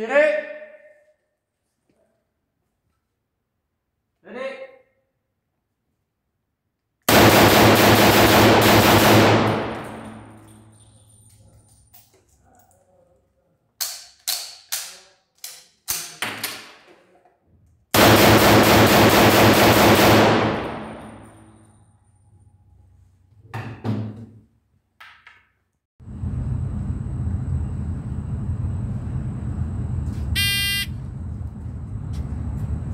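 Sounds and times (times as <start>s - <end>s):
pistol shots with echo: 7.1s - 10.4s, 18.0s - 21.3s
metallic clacks of pistol: 13.8s - 16.7s.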